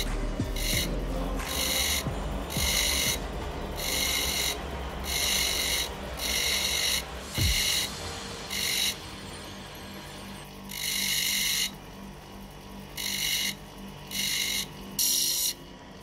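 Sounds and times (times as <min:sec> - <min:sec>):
grinder motor hum: 0:00.0 - 0:09.0, 0:10.5 - 0:16.0
stone rasping on grinding wheel: 0:00.6 - 0:03.2, 0:03.8 - 0:09.0.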